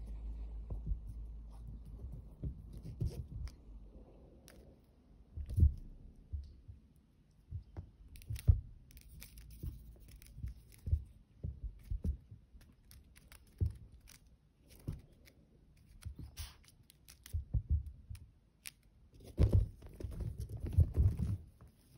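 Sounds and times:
kittens pouncing on sofa cushion: 0.6s - 3.6s, 5.3s - 6.7s, 7.5s - 14.1s, 17.3s - 18.2s, 19.2s - 21.9s
toy clicking and rustling: 11.8s - 17.5s.

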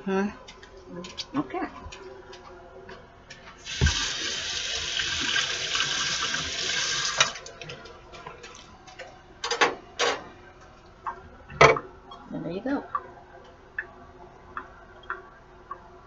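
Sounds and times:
faucet running into steel sink: 3.6s - 7.5s
water thump: 3.7s - 4.1s.

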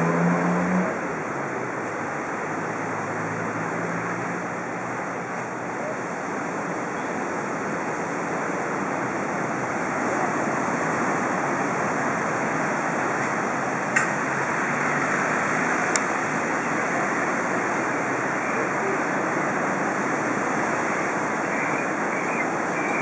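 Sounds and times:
surf breaking on beach: 14.1s - 23.0s.

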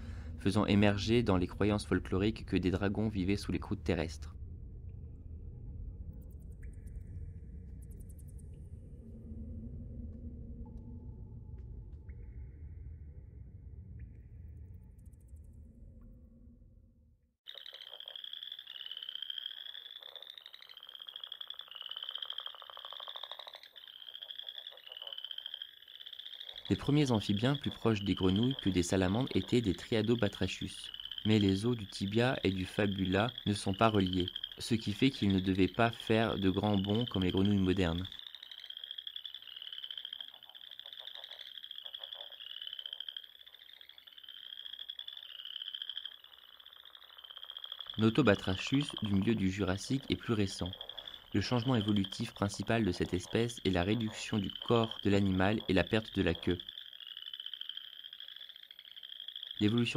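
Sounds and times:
frogs trilling: 0.0s - 4.3s, 17.4s - 59.9s.

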